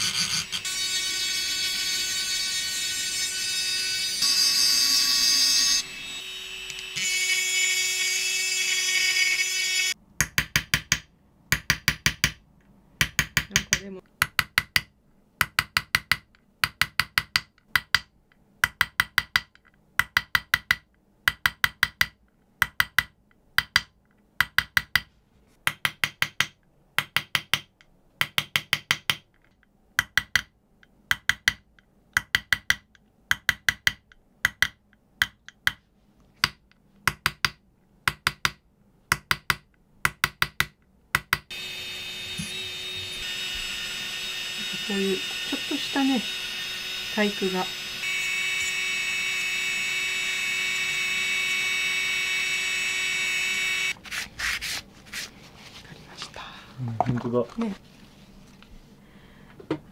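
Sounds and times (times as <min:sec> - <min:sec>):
rotary tool whine: 0:00.0 - 0:10.0, 0:41.5 - 0:54.0.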